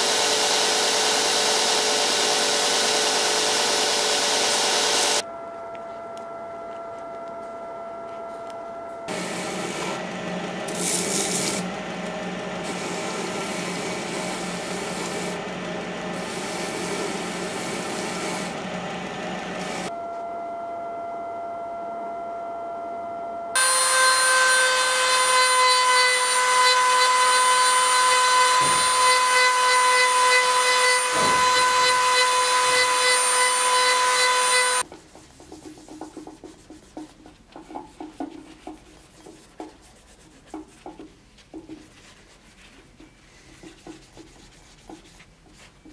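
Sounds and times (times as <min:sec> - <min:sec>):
rotary tool high whine: 0:00.0 - 0:05.5, 0:08.8 - 0:20.0, 0:23.6 - 0:34.8.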